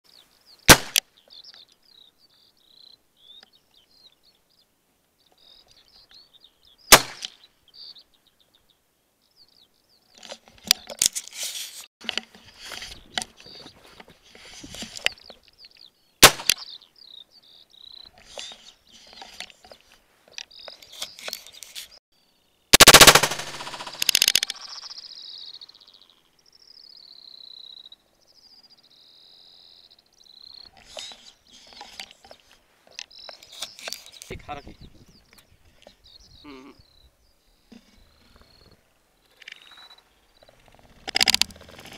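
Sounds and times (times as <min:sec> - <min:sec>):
gunshots: 0:00.7 - 0:01.0, 0:06.9 - 0:07.3, 0:16.2 - 0:16.6, 0:22.8 - 0:24.5
short high chirping calls: 0:23.4 - 0:28.0.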